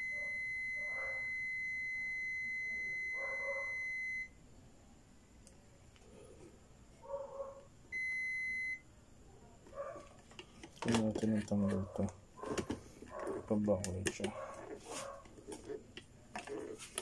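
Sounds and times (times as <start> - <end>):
multimeter continuity beep: 0.0 - 4.4, 7.9 - 8.9.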